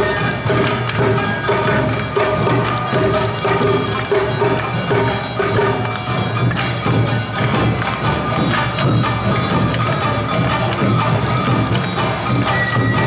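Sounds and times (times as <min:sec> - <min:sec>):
drums struck in quick rhythm: 0:00.0 - 0:13.0.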